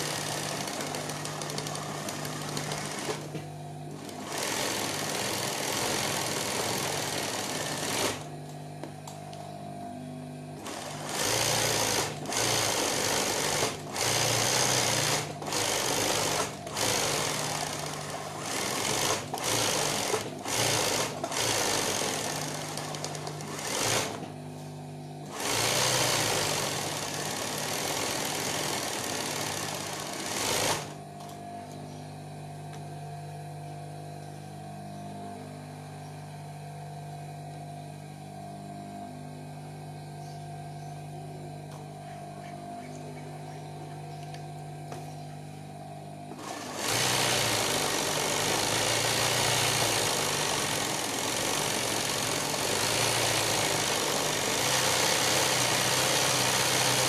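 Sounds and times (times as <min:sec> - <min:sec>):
sewing machine stitching: 0:00.0 - 0:08.3, 0:10.6 - 0:24.2, 0:25.3 - 0:31.0, 0:46.3 - 0:57.0
low motor hum: 0:00.0 - 0:55.4.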